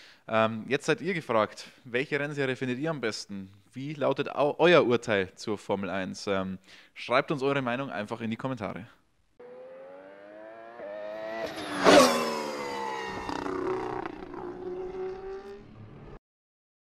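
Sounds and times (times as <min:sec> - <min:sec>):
race car engine passing: 0:09.4 - 0:16.2.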